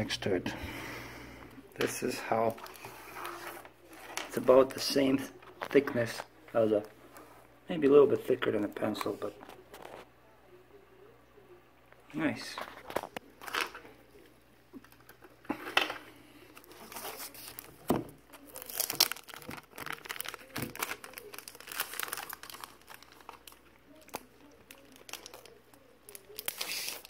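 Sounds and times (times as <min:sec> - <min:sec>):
plastic wrapping crinkling: 0:01.7 - 0:07.2, 0:12.6 - 0:14.0, 0:14.8 - 0:27.0.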